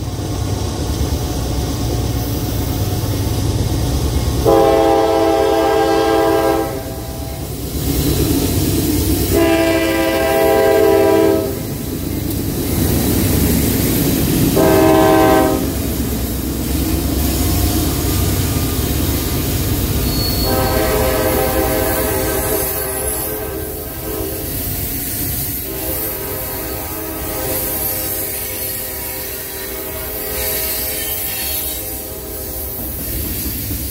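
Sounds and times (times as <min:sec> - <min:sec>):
freight train rumbling past: 0:00.0 - 0:33.9
train air horn blasts: 0:04.4 - 0:07.5, 0:09.2 - 0:11.7, 0:14.5 - 0:15.9, 0:20.1 - 0:24.5, 0:25.6 - 0:32.8.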